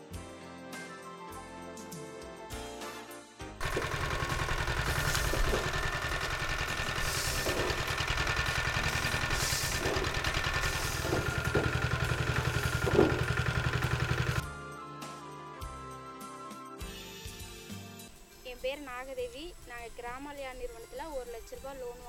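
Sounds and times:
small engine running: 0:03.6 - 0:14.4
stalks crackling in rollers: 0:03.6 - 0:14.4.

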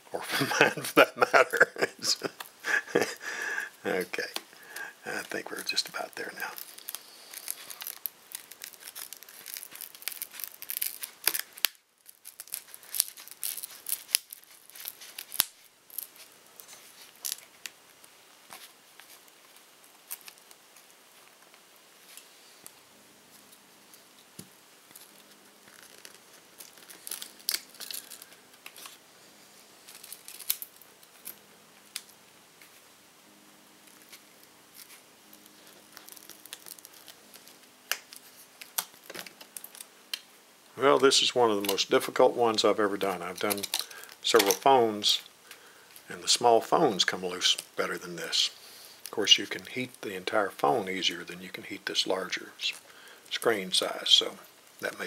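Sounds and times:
broken glass clicks and crackles: 0:05.6 - 0:17.8, 0:24.9 - 0:29.0, 0:29.9 - 0:32.2, 0:33.9 - 0:40.3, 0:43.3 - 0:44.6.

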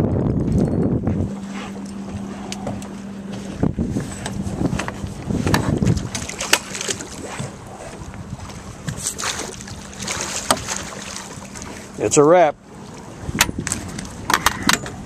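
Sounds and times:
boat engine humming: 0:00.0 - 0:15.0
wind rumbling on microphone: 0:00.0 - 0:15.0
fish splashing in water: 0:05.8 - 0:12.0.

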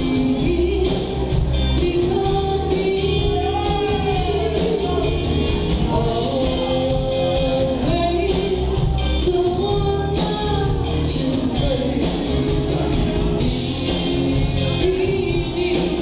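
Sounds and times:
live folk band with singing: 0:00.0 - 0:16.0.

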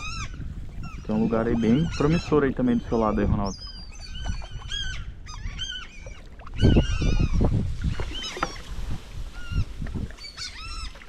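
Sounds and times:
water splashing: 0:05.9 - 0:11.0.

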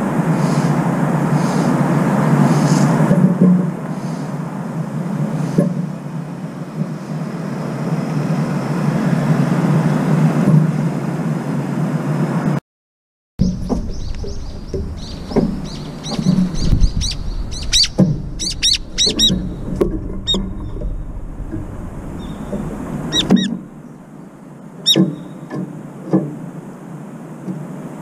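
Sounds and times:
low traffic rumble: 0:00.0 - 0:12.6, 0:13.4 - 0:28.0
birds calling sharp notes: 0:00.3 - 0:03.0, 0:13.4 - 0:25.6
beak pecking metal bowl: 0:13.5 - 0:20.9, 0:22.2 - 0:23.7.

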